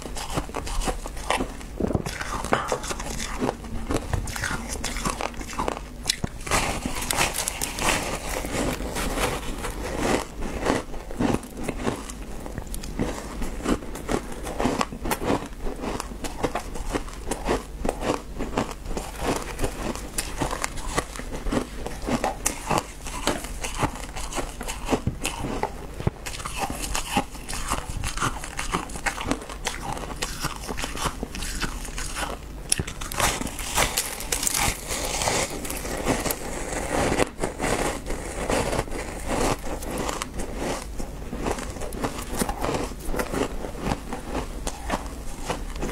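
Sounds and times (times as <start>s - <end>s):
chewing crunchy ice: 0.0s - 45.9s.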